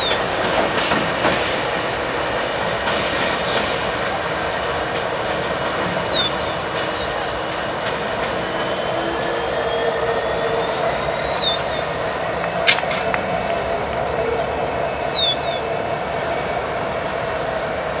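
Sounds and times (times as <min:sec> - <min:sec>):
locomotive engine drone: 0:00.0 - 0:18.0
wheel and rail noise: 0:00.0 - 0:18.0
sharp click: 0:12.5 - 0:13.2.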